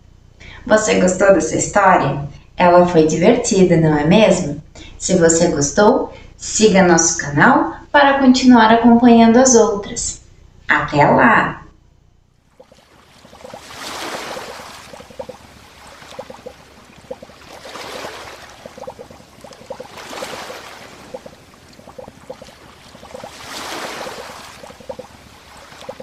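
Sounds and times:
water lapping: 12.4 - 26.0
sea waves washing in: 12.5 - 26.0.

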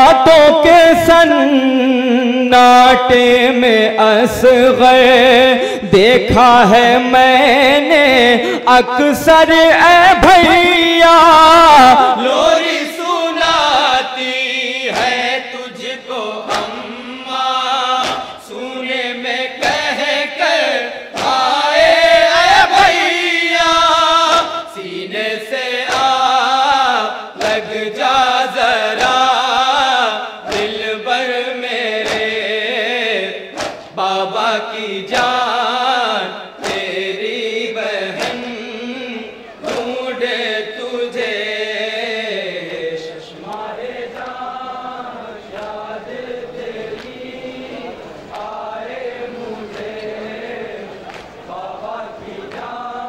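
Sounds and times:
men chanting through microphone: 0.0 - 53.0
chest-beating slaps: 14.9 - 15.3, 16.4 - 16.9, 17.9 - 18.5, 21.1 - 21.5, 25.9 - 26.2, 27.4 - 27.8, 30.5 - 30.9, 31.9 - 32.5, 33.4 - 34.0, 36.6 - 37.1, 38.1 - 38.6, 39.6 - 40.0, 49.7 - 50.1.

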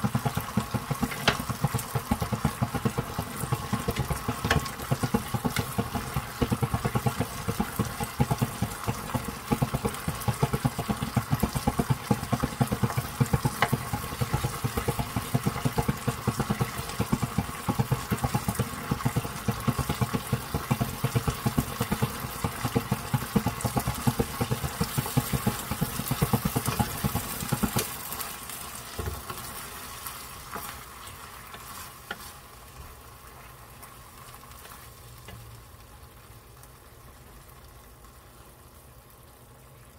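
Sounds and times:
spatula tapping and scraping pan: 0.0 - 28.3, 29.0 - 32.4
sauce sizzling: 0.0 - 39.9.

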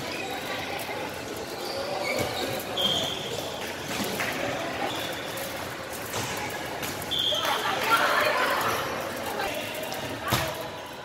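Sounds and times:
shoe squeak: 1.4 - 4.0, 4.8 - 5.6, 7.1 - 9.7.

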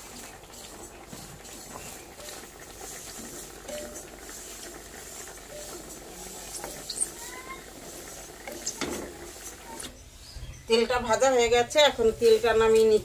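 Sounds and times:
seeds scraping in a pan: 1.1 - 9.8, 11.9 - 13.0.

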